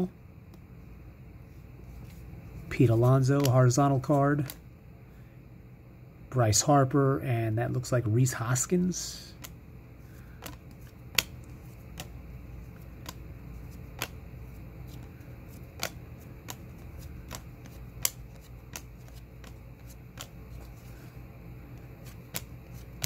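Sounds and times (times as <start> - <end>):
faint low hum: 0.0 - 23.0
cards flipping with clicks: 2.0 - 4.6, 9.3 - 9.6, 10.2 - 21.1, 21.7 - 23.0.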